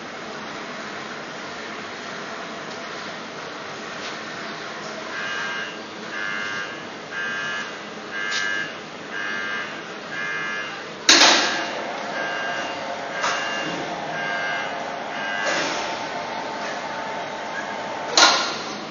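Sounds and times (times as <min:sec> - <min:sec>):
warning beeper: 0:05.2 - 0:18.9
lift machinery humming: 0:09.1 - 0:18.9
loud machinery clunk: 0:11.1 - 0:18.9.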